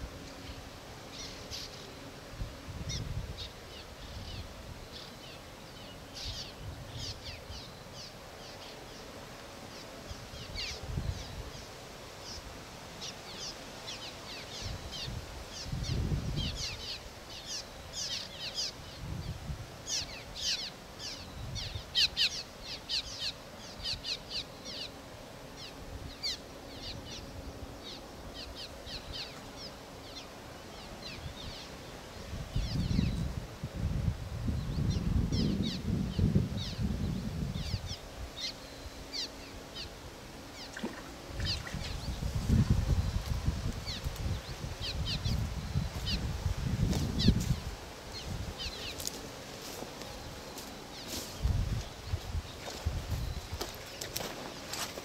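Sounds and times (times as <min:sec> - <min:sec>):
swallows chirping: 0:34.6 - 0:46.3.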